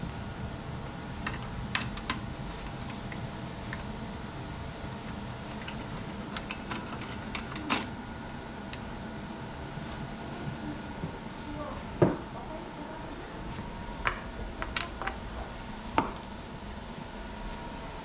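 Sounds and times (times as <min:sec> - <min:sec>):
steady low hum: 0:00.0 - 0:18.0
metallic clinks of hand tools: 0:01.2 - 0:02.2, 0:05.5 - 0:08.9.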